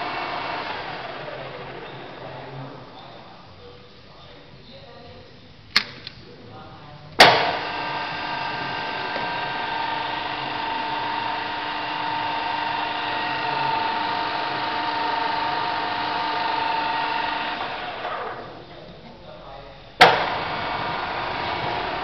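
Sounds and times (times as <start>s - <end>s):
drill spindle whining: 0.0s - 3.3s, 7.2s - 18.8s, 20.0s - 22.0s
machine clack: 7.2s - 7.8s, 20.0s - 20.4s.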